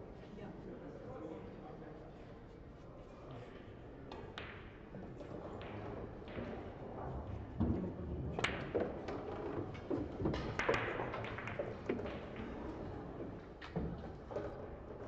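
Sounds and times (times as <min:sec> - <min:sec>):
pool balls clicking: 0:08.4 - 0:15.0.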